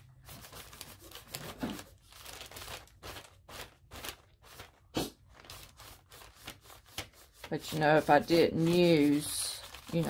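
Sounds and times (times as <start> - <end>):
art materials rubbing on paper: 5.0 - 10.0.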